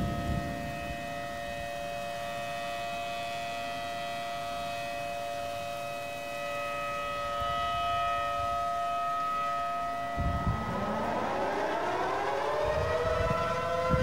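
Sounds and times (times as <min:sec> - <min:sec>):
warning siren wailing: 0:00.0 - 0:14.0.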